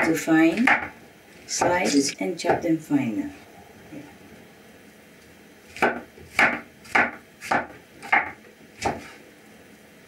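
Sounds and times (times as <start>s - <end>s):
knife chopping on cutting board: 5.7s - 9.2s.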